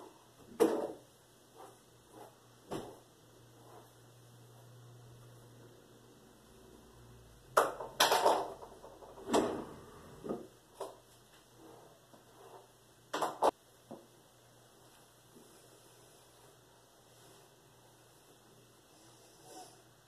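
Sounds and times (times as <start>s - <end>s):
objects knocking on tiled countertop: 7.6s - 9.1s.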